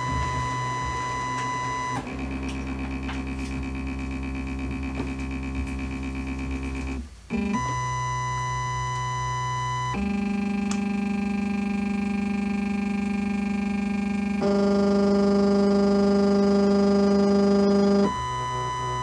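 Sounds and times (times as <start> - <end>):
stepper motors whining: 0.0 - 7.0.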